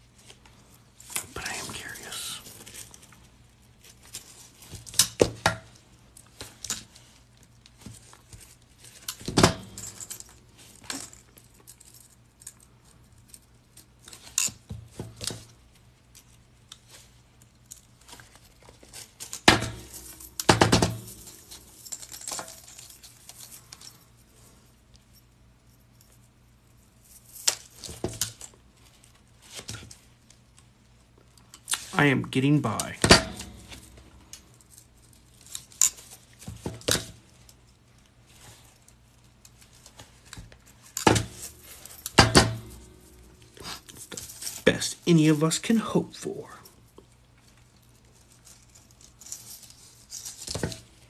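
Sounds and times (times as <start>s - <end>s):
metal rings clinking: 9.6s - 12.6s, 19.6s - 23.9s, 40.9s - 44.6s.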